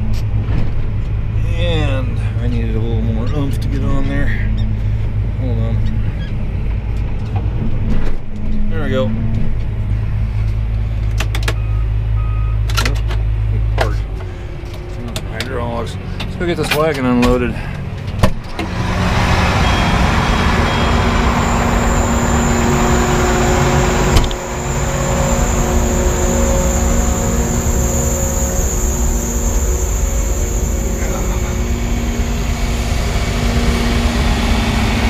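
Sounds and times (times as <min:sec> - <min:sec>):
tractor engine idling: 0:17.7 - 0:35.0.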